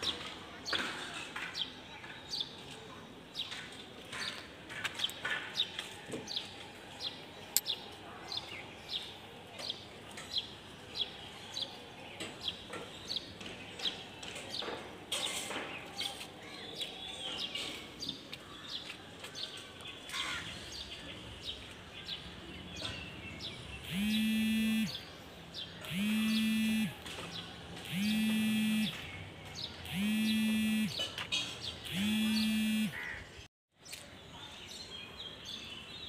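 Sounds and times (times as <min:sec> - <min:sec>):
faint outdoor background noise: 0:00.0 - 0:36.0
bird chirping: 0:23.8 - 0:26.9, 0:27.8 - 0:31.1, 0:31.8 - 0:33.0.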